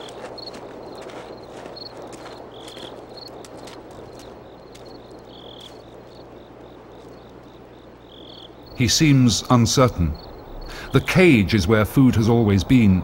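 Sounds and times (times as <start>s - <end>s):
insects chirping: 0.0s - 13.0s
insect buzzing call: 4.1s - 8.8s
soft steady background hiss: 5.3s - 13.0s.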